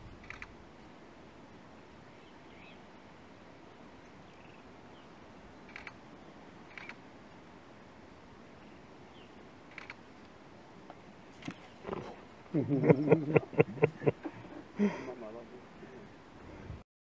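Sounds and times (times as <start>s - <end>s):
faint bush ambience: 0.0s - 16.8s
soft bird chirps: 2.0s - 2.9s, 3.8s - 7.0s, 8.5s - 10.0s, 11.4s - 12.2s.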